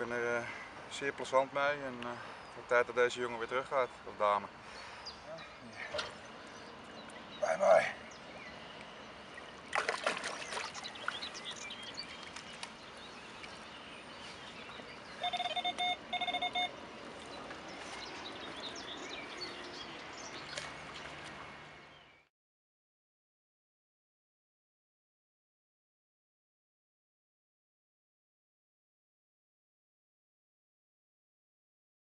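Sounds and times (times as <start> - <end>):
water splashing: 9.4 - 13.7, 20.3 - 21.8
short electronic beeps: 15.2 - 16.7.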